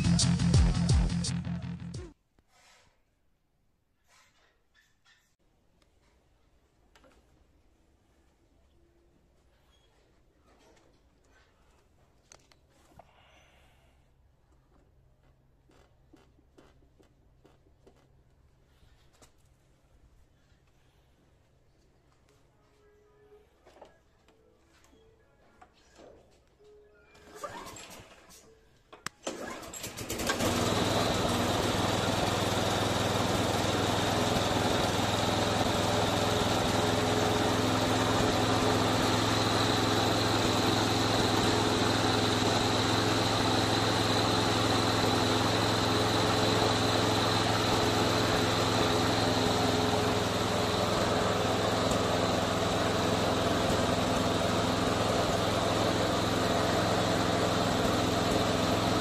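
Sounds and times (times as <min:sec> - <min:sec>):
lawn mower engine running: 0:29.3 - 0:59.0.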